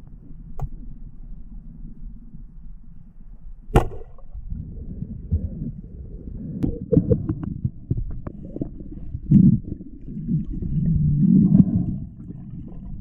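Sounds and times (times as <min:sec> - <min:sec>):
underwater clicks and knocks: 0:00.0 - 0:00.8, 0:03.7 - 0:04.5, 0:06.6 - 0:09.6
muffled underwater rumble: 0:00.0 - 0:13.0
low underwater burst: 0:03.6 - 0:13.0.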